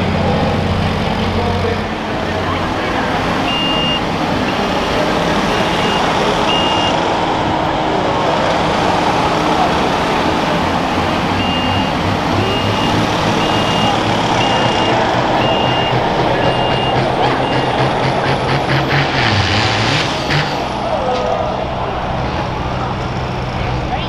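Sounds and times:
diesel tractor engine running: 0.0 - 24.0
backup alarm beeping: 3.4 - 4.9, 5.5 - 7.0, 11.4 - 17.9
turbo whistle: 3.5 - 4.0, 11.4 - 17.7.

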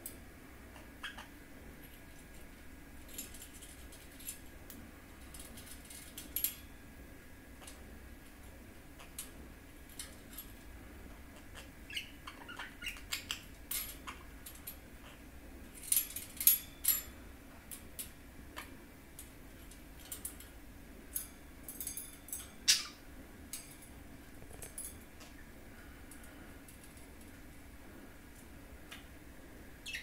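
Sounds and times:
budgie chirping: 11.5 - 14.2.

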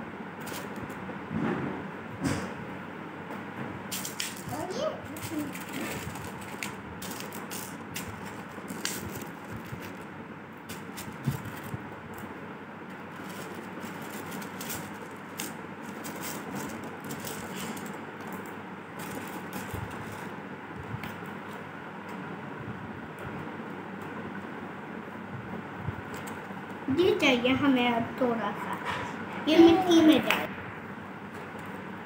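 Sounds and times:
pebbles clicking and rattling: 5.2 - 10.0, 13.1 - 20.2.

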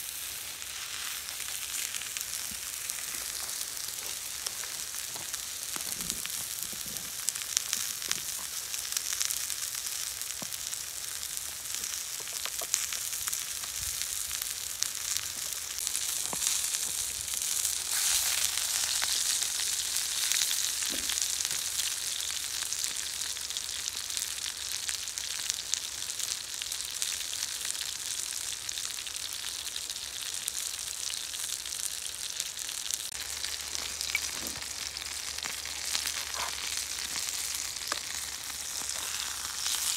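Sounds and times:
food sizzling in hot fat: 0.0 - 39.9.

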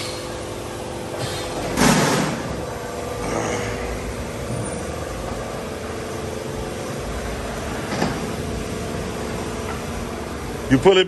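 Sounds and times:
steady mechanical hum: 0.0 - 11.0.

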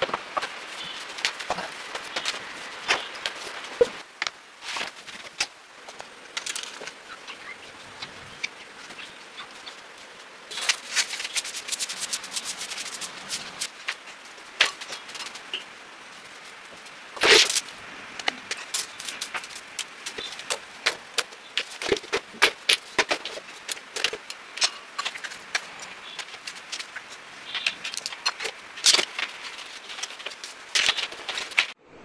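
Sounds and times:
rustle: 0.0 - 31.8
small broom scratching: 4.6 - 7.0, 8.0 - 17.7, 18.4 - 31.8.

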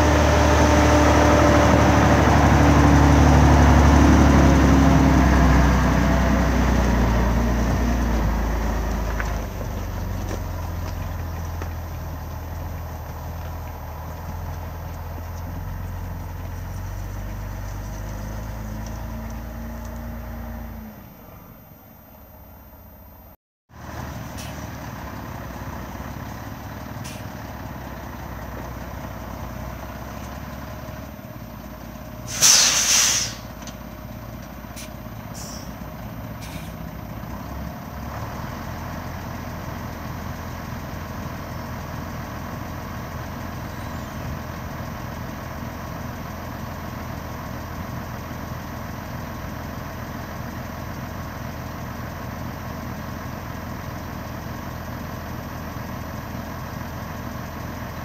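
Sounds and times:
diesel engine idling: 0.0 - 58.0
compressed air hiss: 32.3 - 33.5.

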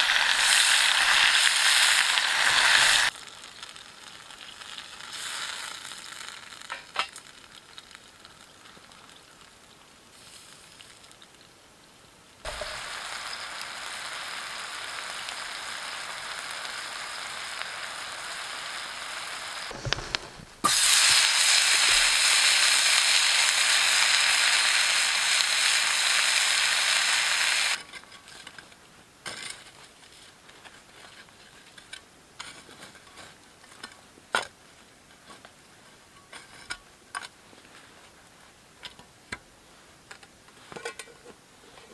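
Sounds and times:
food sizzling in hot oil: 0.0 - 11.4, 12.5 - 27.8.

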